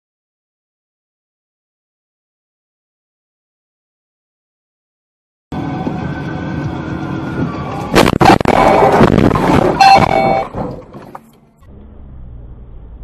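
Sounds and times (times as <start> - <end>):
road noise: 5.5 - 13.0
car crash impacts: 7.9 - 11.1
car horn: 8.0 - 10.6.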